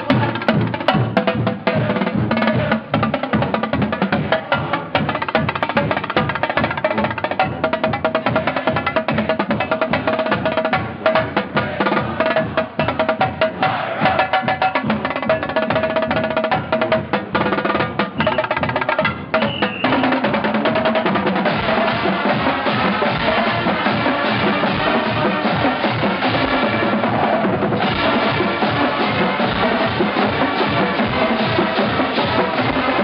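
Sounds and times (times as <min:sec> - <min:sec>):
drumline playing cadence: 0:00.0 - 0:33.0
brass and winds playing: 0:13.6 - 0:14.2, 0:21.4 - 0:33.0.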